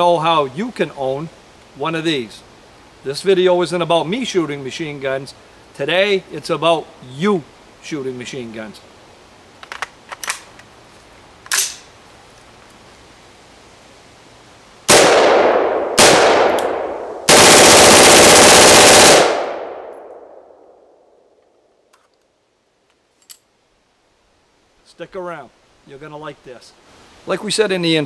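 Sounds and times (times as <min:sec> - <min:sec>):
rifle handling clicks: 0:09.6 - 0:10.7, 0:11.4 - 0:11.9
automatic gunfire bursts: 0:14.9 - 0:19.8.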